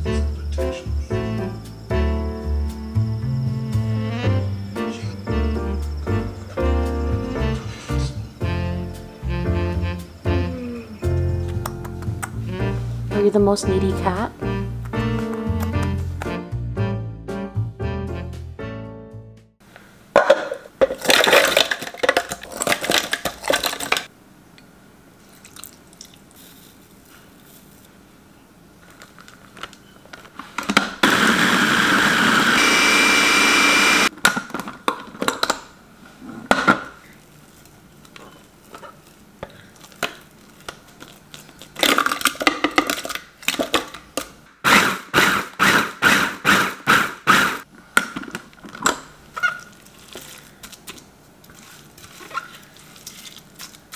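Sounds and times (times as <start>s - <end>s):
food processor grinding: 31.0s - 34.1s, 44.6s - 47.6s.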